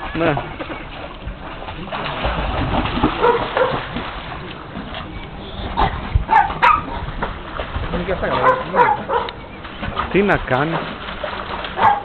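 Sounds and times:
dog barking: 3.2 - 3.8, 6.3 - 6.9, 8.4 - 9.4, 11.8 - 12.0.

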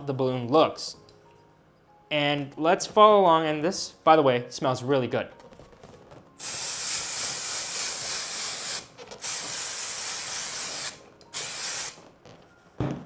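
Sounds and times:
spray can hissing: 6.4 - 12.0.

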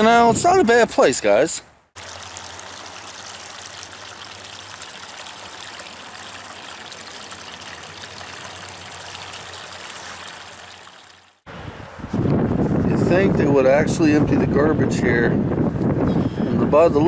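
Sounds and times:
creek trickling over stones: 2.0 - 11.5.

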